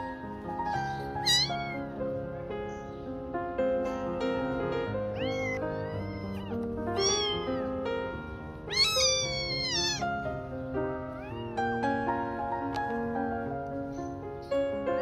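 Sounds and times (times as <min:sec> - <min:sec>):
kitten meowing: 0:00.4 - 0:02.0, 0:04.9 - 0:12.8.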